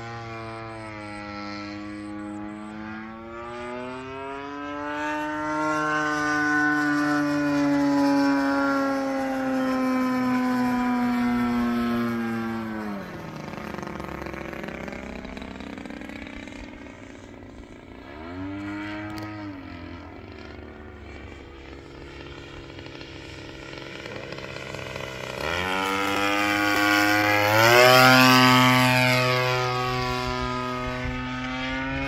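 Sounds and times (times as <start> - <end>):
model airplane engine in flight: 0.0 - 32.0.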